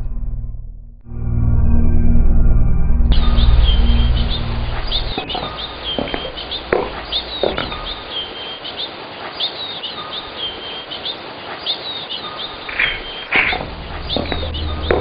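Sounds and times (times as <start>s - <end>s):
birds chirping and whistling: 3.1s - 15.0s.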